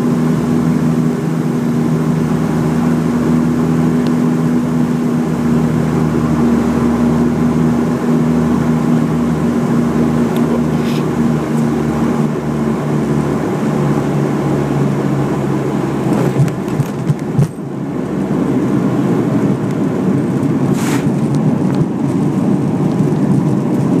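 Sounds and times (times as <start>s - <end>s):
airplane engines droning: 0.0s - 24.0s
landing rollout rush: 19.2s - 22.4s.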